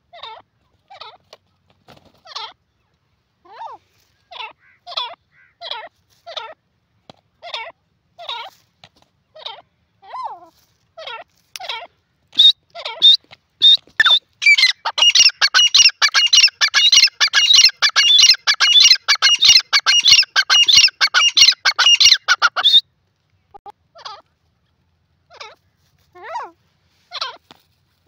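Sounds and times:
francolin calling: 12.4 - 22.8.

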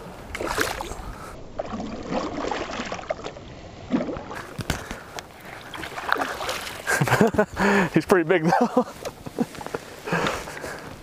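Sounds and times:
fish splashing in water: 1.6 - 7.0.

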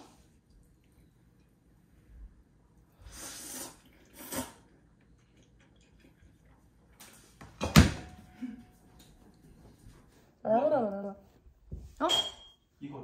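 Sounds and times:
person slurping noodles: 3.1 - 4.7.

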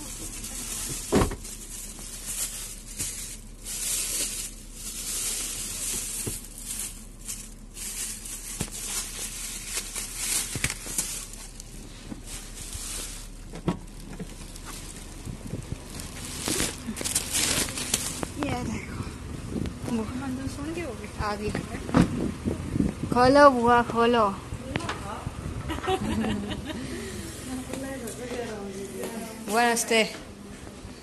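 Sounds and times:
plastic bags rustling: 0.0 - 18.7.

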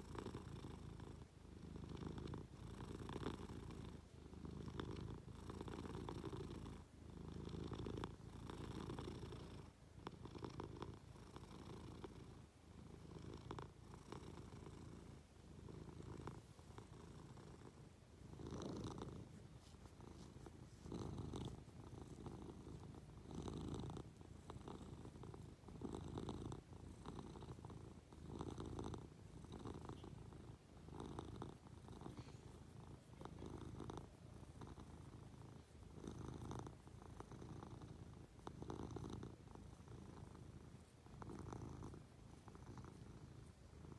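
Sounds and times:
cat purring: 0.0 - 43.9.

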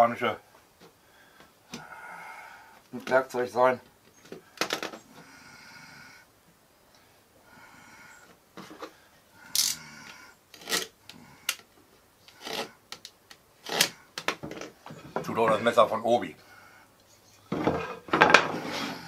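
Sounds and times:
utility knife scraping wood: 10.6 - 11.6, 12.2 - 14.0.

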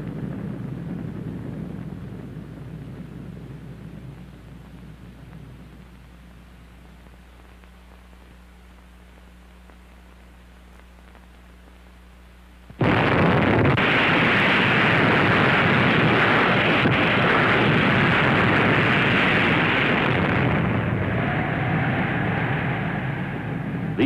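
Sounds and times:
faint steady hum: 0.0 - 24.0
loud explosion blast: 12.8 - 24.0.

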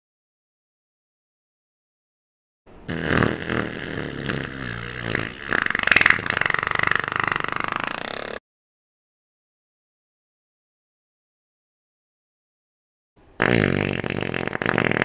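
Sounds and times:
person farting: 2.9 - 8.4, 13.4 - 15.0.

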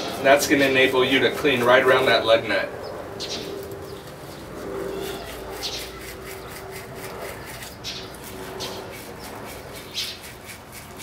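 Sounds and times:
brush scrubbing a wheel: 0.0 - 2.0, 4.9 - 11.0.

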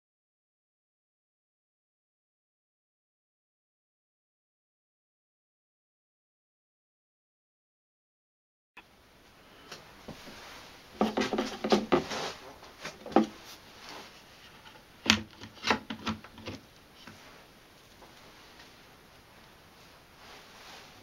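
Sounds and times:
wood rubbing: 10.1 - 18.7
wooden knocks: 11.0 - 12.1.

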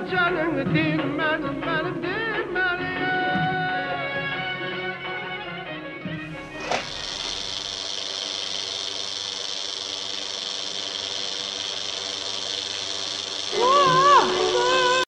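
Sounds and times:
film viewer running with hiss and hum: 6.3 - 15.0.

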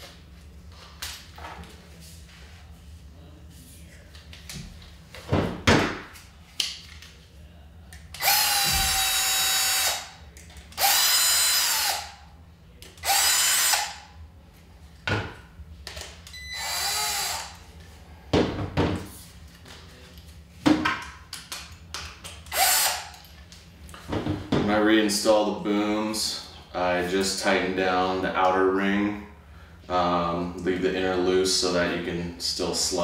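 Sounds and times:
cordless drill running: 8.2 - 12.2, 13.0 - 14.1, 16.3 - 17.6, 22.5 - 23.2.

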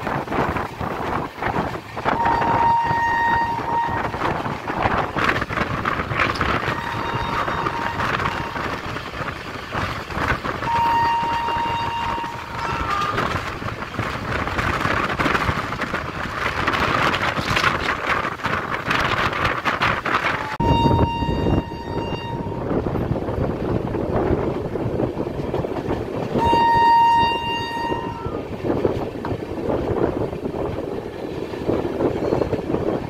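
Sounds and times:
train rumbling on rails: 0.0 - 33.0
train horn blasts: 2.1 - 4.6, 6.5 - 8.9, 10.6 - 13.5, 20.4 - 22.8, 26.4 - 28.4.

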